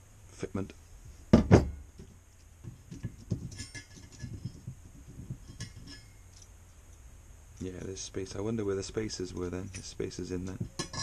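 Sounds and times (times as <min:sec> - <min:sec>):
metal sprockets knocking and clinking: 0:02.8 - 0:06.5.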